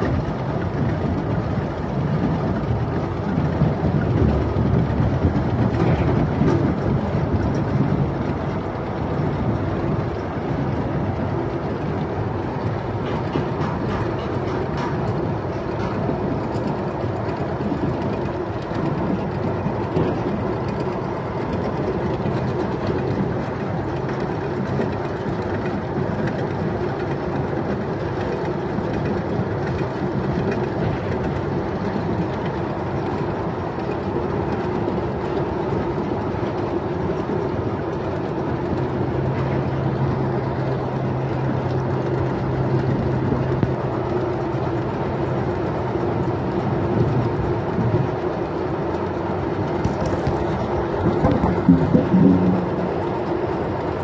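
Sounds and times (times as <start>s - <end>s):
low hum: 49.8s - 53.4s.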